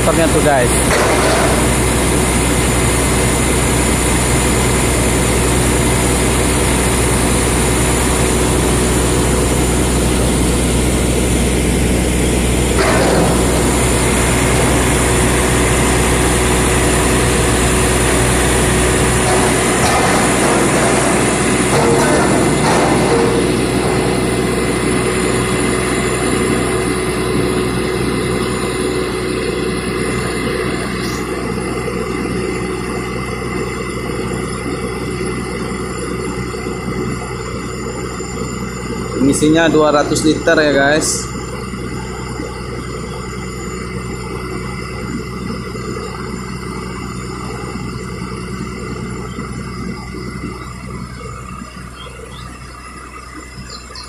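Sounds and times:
diesel excavator engine running: 0.0 - 54.0.

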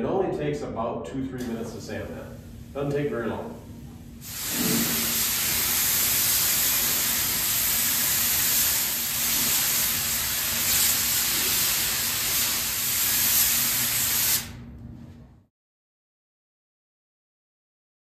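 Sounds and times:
paint spray gun hissing: 4.2 - 14.6.

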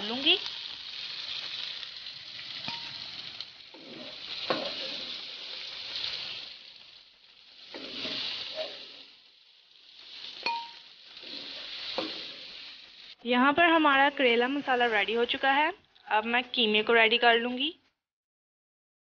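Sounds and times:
vegetables sizzling in oil: 0.0 - 17.7
wooden spatula scraping: 1.4 - 9.2, 9.8 - 13.2.

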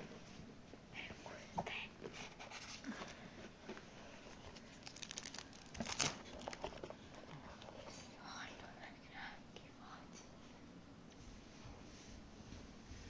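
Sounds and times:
plastic film crinkling: 4.3 - 6.9.

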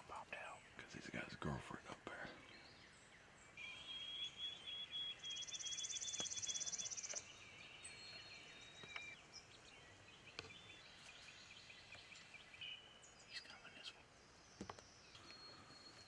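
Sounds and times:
bird chirps: 0.0 - 16.0
songbirds trilling: 0.0 - 16.0.

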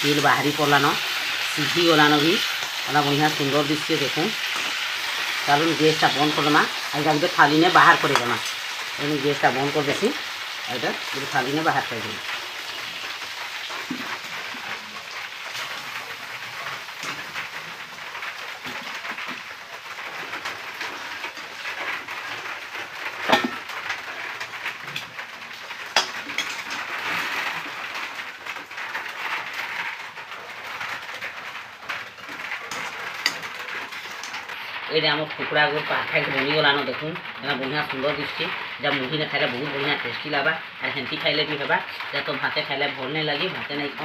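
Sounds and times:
metal spatula stirring and scraping: 0.0 - 34.9
food sizzling in a metal pan: 0.0 - 44.0.

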